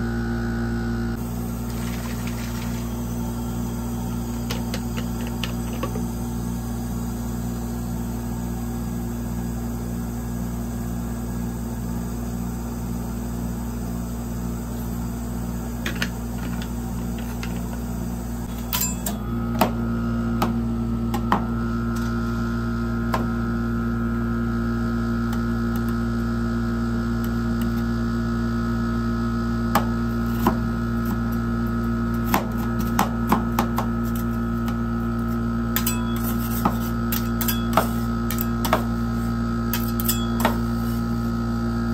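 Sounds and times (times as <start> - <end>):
high whine: 0.0 - 8.3, 14.4 - 32.9, 34.0 - 41.9
electrical hum of cold plate: 0.0 - 41.9
metal spatulas chopping on steel: 18.6 - 19.2, 35.8 - 39.0, 39.7 - 40.9.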